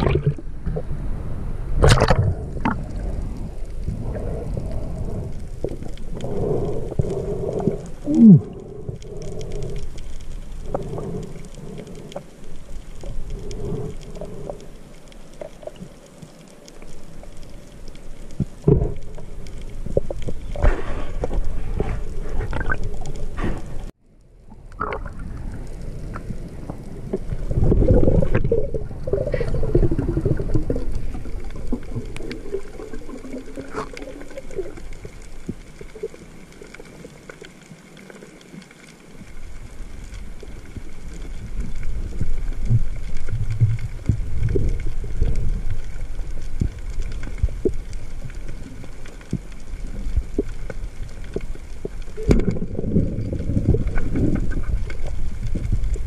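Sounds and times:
water sloshing and gurgling: 0:00.0 - 0:56.0.

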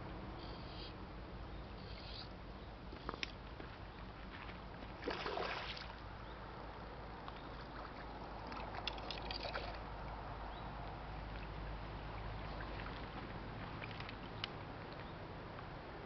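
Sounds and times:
fish splashing at water surface: 0:05.0 - 0:06.0.

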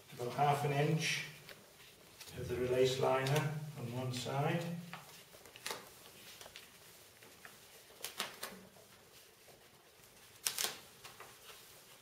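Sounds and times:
plastic sheet crackling: 0:00.0 - 0:12.0.

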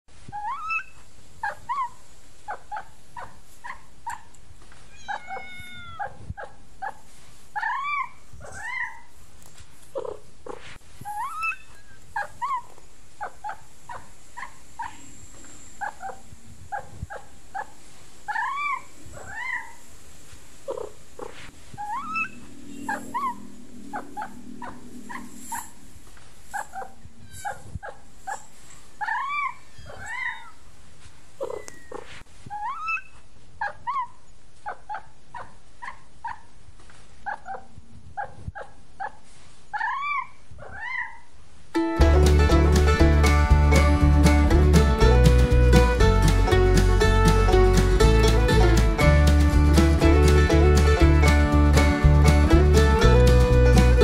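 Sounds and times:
kittens mewing: 0:04.9 - 0:06.1.

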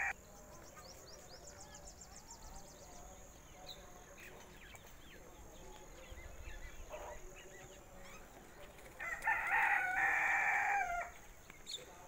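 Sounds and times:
small birds chirping: 0:00.0 - 0:12.0
rooster crowing: 0:09.0 - 0:11.2.

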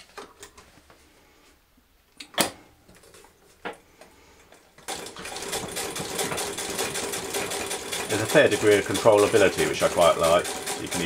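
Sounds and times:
sewing machine clatter: 0:04.8 - 0:11.0.

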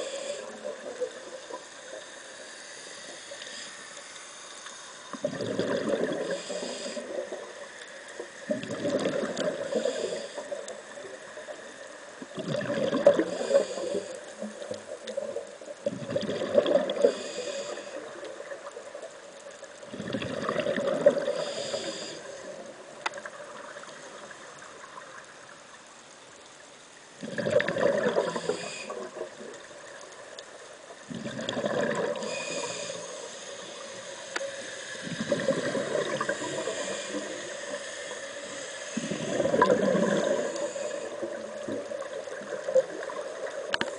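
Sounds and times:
diver breathing through regulator: 0:00.0 - 0:11.0, 0:13.0 - 0:14.6, 0:16.9 - 0:18.3, 0:21.1 - 0:22.6, 0:27.9 - 0:29.3, 0:31.5 - 0:41.7
gurgling exhaled bubbles: 0:05.1 - 0:07.5, 0:08.4 - 0:10.2, 0:12.2 - 0:14.0, 0:15.8 - 0:17.3, 0:19.9 - 0:22.0, 0:27.2 - 0:29.9, 0:31.1 - 0:32.8, 0:35.0 - 0:37.4, 0:38.9 - 0:43.9.

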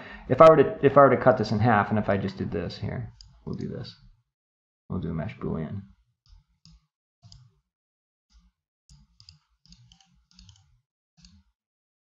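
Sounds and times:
computer mouse clicks: 0:03.1 - 0:03.7, 0:06.7 - 0:07.5, 0:08.9 - 0:11.5.

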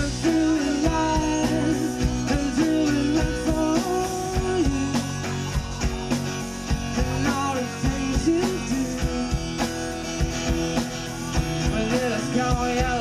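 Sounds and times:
person singing: 0:00.0 - 0:05.7, 0:06.9 - 0:09.4, 0:11.6 - 0:13.0
drum kit beat: 0:00.0 - 0:13.0
electric bass: 0:00.0 - 0:13.0
electric guitar: 0:00.0 - 0:13.0
strummed acoustic guitar: 0:00.0 - 0:13.0.

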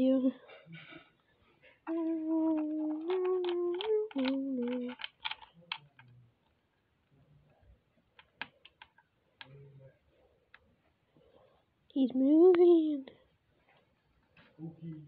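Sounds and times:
child humming a tune: 0:01.9 - 0:05.1
crab clicking on plastic plates: 0:02.4 - 0:06.2, 0:08.1 - 0:09.6.

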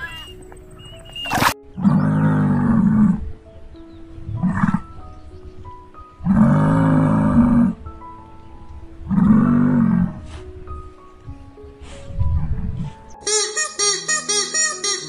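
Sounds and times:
faint bird chirps: 0:00.0 - 0:02.2
soft background music: 0:00.0 - 0:15.0
musk ox bellowing: 0:01.3 - 0:03.2, 0:06.2 - 0:07.8.

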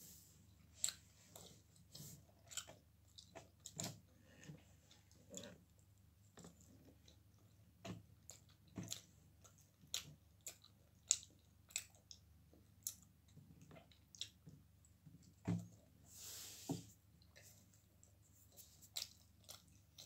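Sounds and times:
person chewing pizza: 0:00.5 - 0:15.3, 0:17.2 - 0:20.0.

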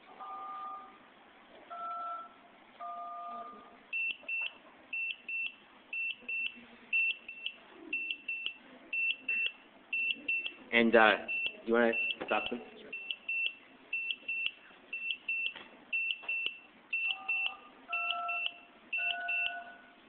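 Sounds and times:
keypad tones: 0:01.7 - 0:10.6, 0:11.3 - 0:20.0
piezo buzzer beeping in pairs: 0:04.0 - 0:10.6, 0:11.2 - 0:19.8.

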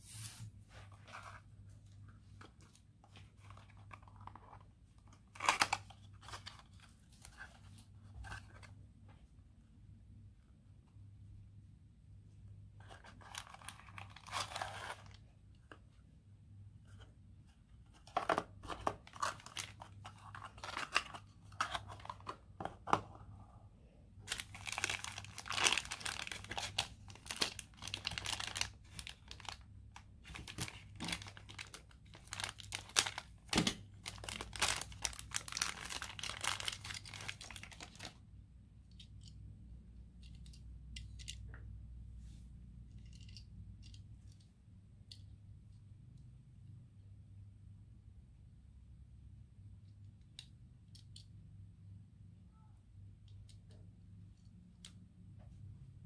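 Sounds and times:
cardboard and plastic crinkling: 0:12.8 - 0:15.2, 0:17.9 - 0:22.4, 0:24.3 - 0:29.6, 0:30.2 - 0:38.2.

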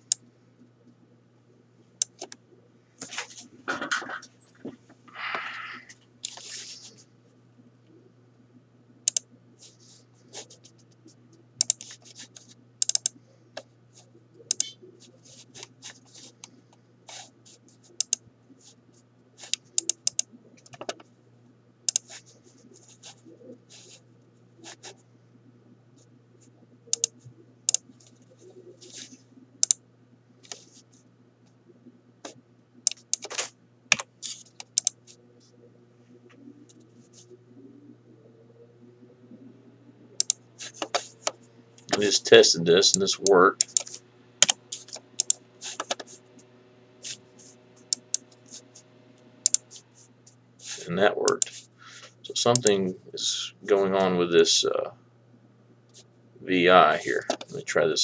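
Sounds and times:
faint low hum: 0:00.0 - 0:58.0
mouse and keyboard clicks: 0:09.1 - 0:09.3, 0:11.6 - 0:13.2, 0:14.5 - 0:14.8, 0:18.0 - 0:18.2, 0:19.4 - 0:21.1, 0:21.9 - 0:22.2, 0:26.9 - 0:27.8, 0:32.2 - 0:35.2, 0:40.2 - 0:42.1, 0:43.2 - 0:46.2, 0:49.4 - 0:49.8.

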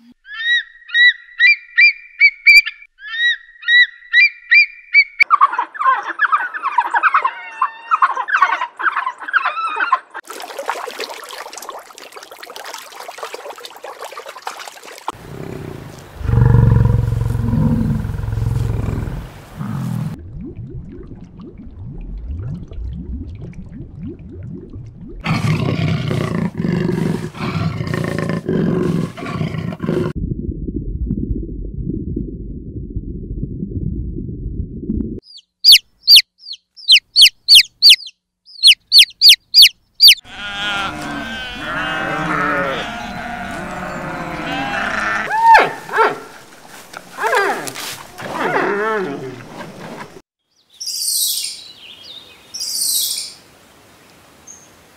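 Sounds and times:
low rumbling: 0:15.2 - 0:25.4, 0:30.0 - 0:35.2
baby chicks peeping: 0:35.3 - 0:40.2
overlapping animal calls: 0:35.3 - 0:50.1.

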